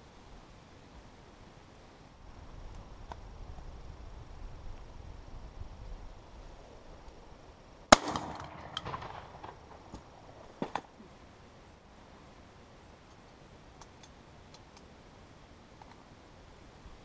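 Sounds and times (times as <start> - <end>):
shotgun shot echoing: 7.9 - 10.0.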